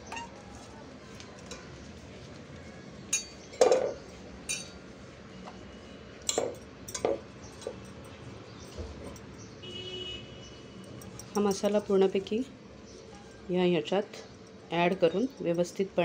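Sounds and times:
steel plate and bowl clinking: 0:04.5 - 0:04.8.

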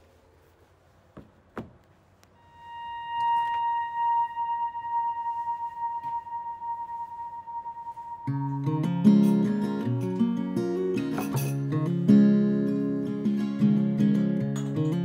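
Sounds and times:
soft knocks: 0:01.1 - 0:02.0
steady synthesizer tone: 0:02.4 - 0:10.7.

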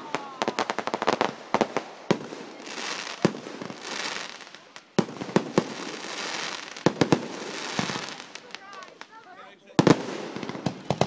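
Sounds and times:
fireworks bangs: 0:00.0 - 0:11.0
hissing crackle of fireworks: 0:00.0 - 0:11.0.

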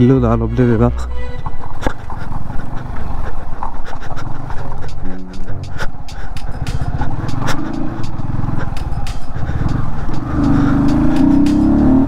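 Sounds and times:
motorcycle engine revving: 0:05.0 - 0:12.0.

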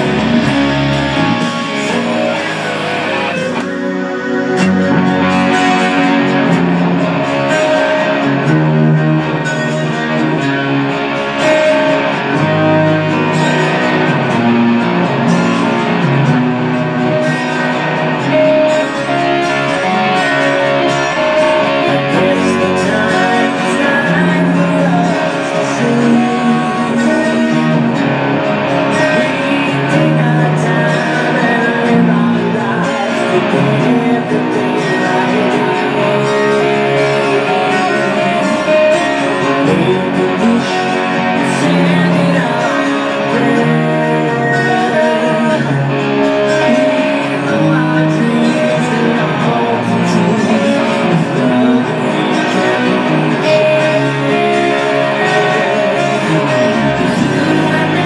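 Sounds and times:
bass notes: 0:00.0 - 0:58.0
electric guitar rock ballad: 0:00.0 - 0:58.0.

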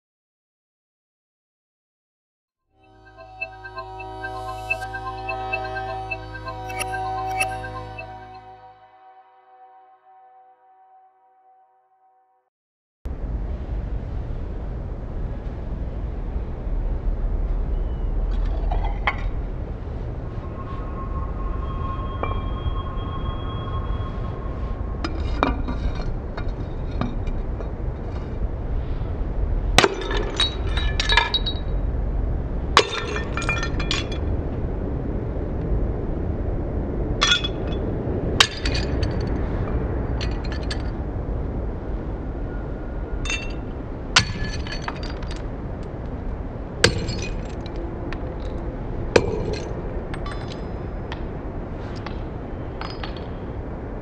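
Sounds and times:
steady low rumble: 0:13.1 - 0:54.0
shards clinking and scattering: 0:29.8 - 0:31.7, 0:37.2 - 0:37.8, 0:38.4 - 0:39.4, 0:40.2 - 0:41.0, 0:43.3 - 0:45.5, 0:46.8 - 0:47.8.

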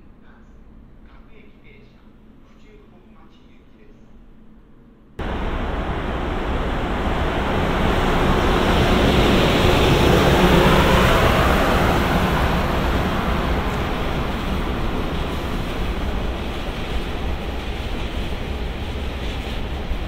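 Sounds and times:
train wheels rumbling on rail: 0:05.2 - 0:20.0.

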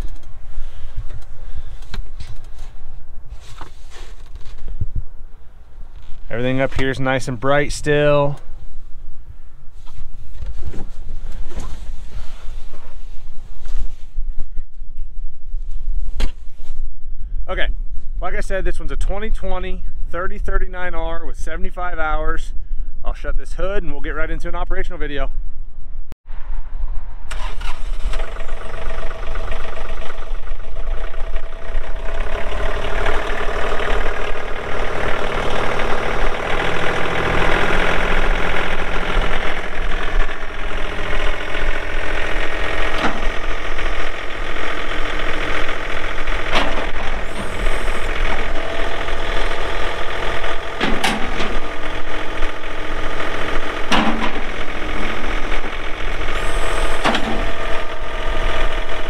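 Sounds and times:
tractor diesel engine running: 0:00.0 - 0:13.0, 0:27.3 - 0:59.0
sharp metal clunks: 0:50.8 - 0:51.6, 0:53.9 - 0:54.5.

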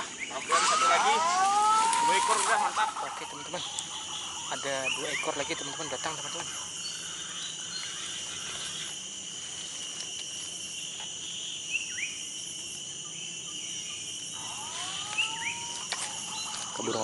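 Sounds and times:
bird chirps: 0:00.0 - 0:09.0, 0:13.0 - 0:17.0
insects droning: 0:00.0 - 0:17.0
rising whistled bird calls: 0:14.4 - 0:16.7.

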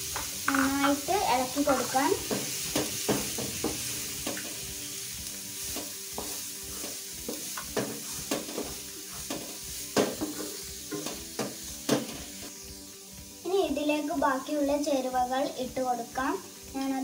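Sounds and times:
onions sizzling in oil: 0:00.0 - 0:17.0
spatula scraping and knocking pan: 0:00.1 - 0:04.7, 0:05.6 - 0:12.5.

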